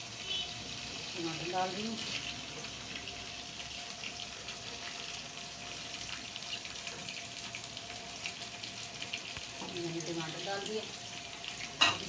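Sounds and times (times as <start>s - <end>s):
tomatoes sizzling in hot oil: 0.0s - 12.0s.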